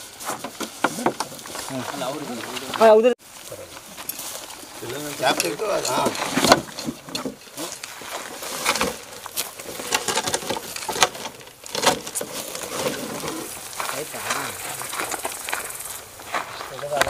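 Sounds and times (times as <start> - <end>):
crackling and rustling: 0.0 - 17.0
people talking indistinctly: 0.9 - 3.2, 4.8 - 6.5.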